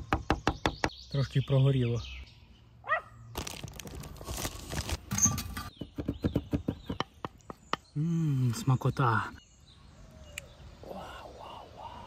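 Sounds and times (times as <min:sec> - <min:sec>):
foil and bacon crinkling: 0:03.4 - 0:05.1.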